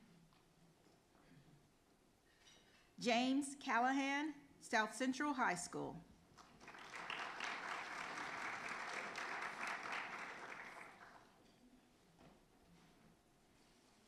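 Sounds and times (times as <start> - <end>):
audience applauding: 6.4 - 11.3.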